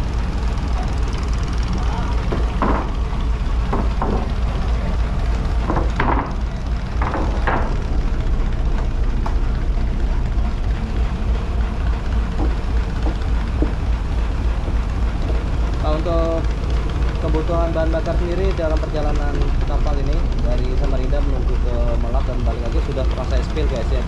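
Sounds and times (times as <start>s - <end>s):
steady low rumble: 0.0s - 24.0s
wooden boards knocking: 2.2s - 9.5s, 12.2s - 13.9s.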